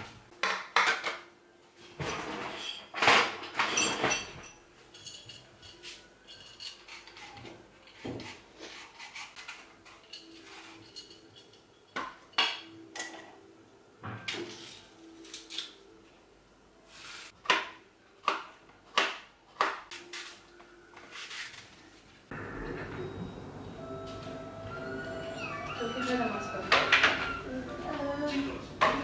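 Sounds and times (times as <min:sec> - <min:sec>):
dishes and cutlery clattering: 0:01.9 - 0:08.4, 0:09.5 - 0:13.4, 0:24.8 - 0:27.5.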